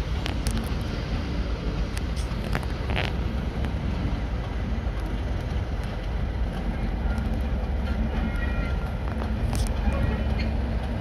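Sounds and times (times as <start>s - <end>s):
train rumbling: 0.0s - 11.0s.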